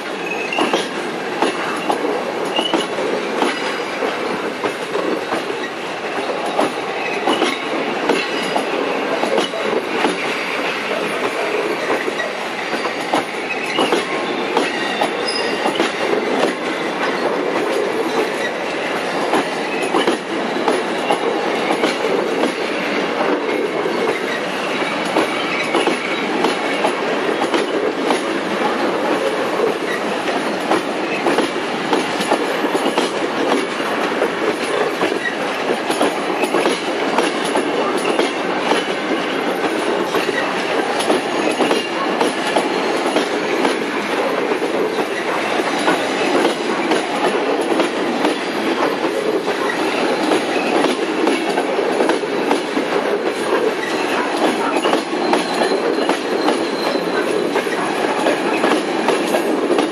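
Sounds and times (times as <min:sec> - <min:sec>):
train wheels rumbling on rails: 0:00.0 - 0:59.9
wheels clicking over rail joints: 0:00.0 - 0:59.9.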